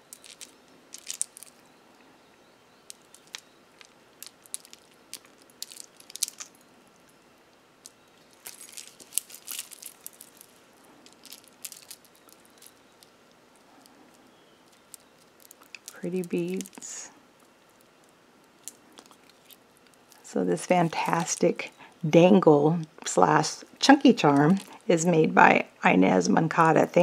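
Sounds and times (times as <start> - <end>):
beads and charms clicking: 0.0 - 1.6, 2.9 - 6.6, 7.8 - 13.9.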